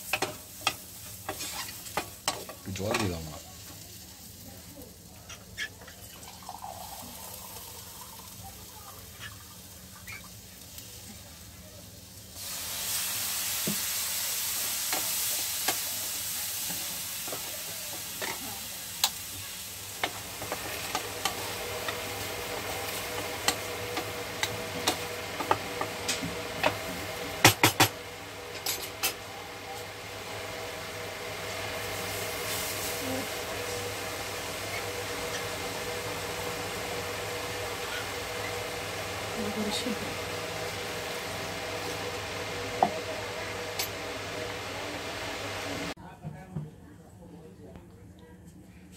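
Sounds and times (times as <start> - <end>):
water sizzling in hot pan: 0.0 - 46.0
wooden spatula scraping a pan: 1.0 - 2.1.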